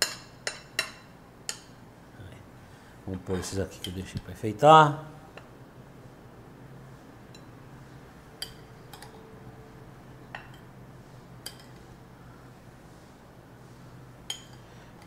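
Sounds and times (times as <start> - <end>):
low steady hum: 0.0 - 15.0
cutlery clinking on ceramic plate: 14.3 - 14.6.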